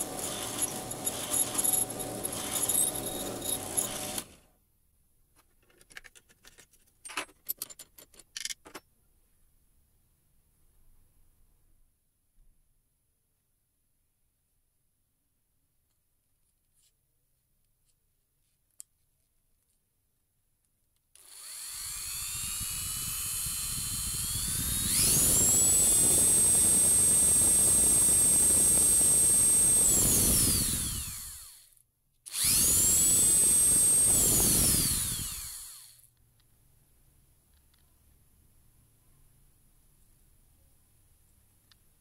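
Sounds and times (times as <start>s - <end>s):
rotary tool motor whining: 0.0s - 4.4s, 21.2s - 36.1s.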